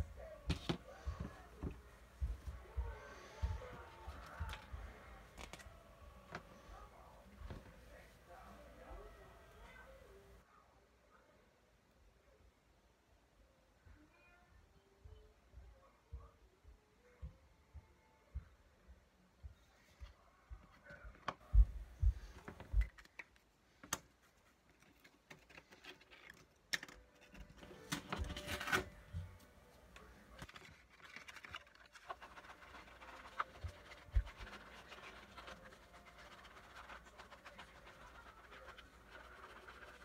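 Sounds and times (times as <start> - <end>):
scratchy rustle: 30.3 - 40.0.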